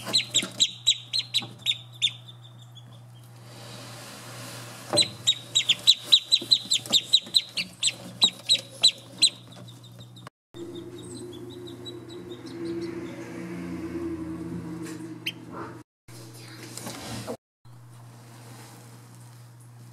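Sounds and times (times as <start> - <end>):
ducklings peeping: 0.0 - 3.3, 5.0 - 13.1
low hum: 10.6 - 16.5.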